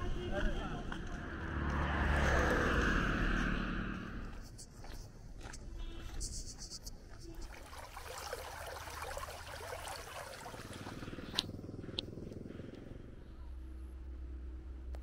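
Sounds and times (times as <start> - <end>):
vehicle engine running: 10.2 - 15.0.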